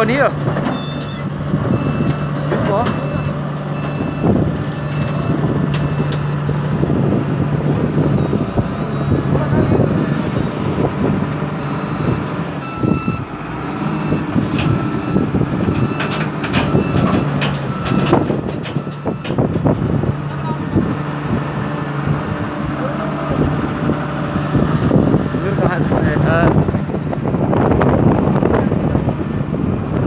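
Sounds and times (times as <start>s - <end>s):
excavator diesel engine running: 0.0s - 30.0s
high beeping alarm: 1.8s - 6.4s, 11.6s - 16.1s.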